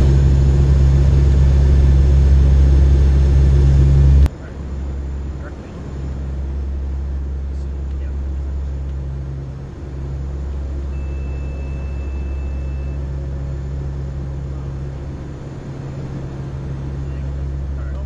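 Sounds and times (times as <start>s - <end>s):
turboprop engines droning: 0.0s - 18.0s
thin high steady tone: 10.8s - 13.2s.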